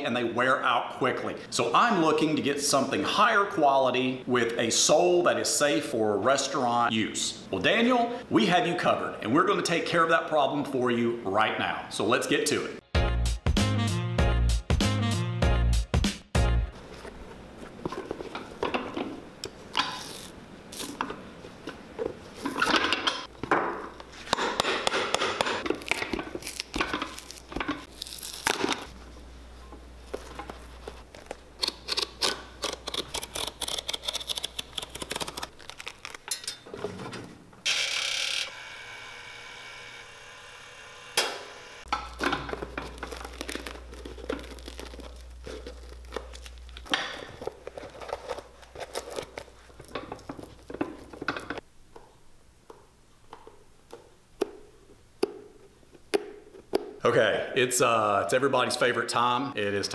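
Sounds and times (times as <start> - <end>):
steady mechanical hum: 16.8 - 56.6
hand tools scraping and knocking: 21.0 - 27.9, 41.9 - 43.2, 46.8 - 51.6.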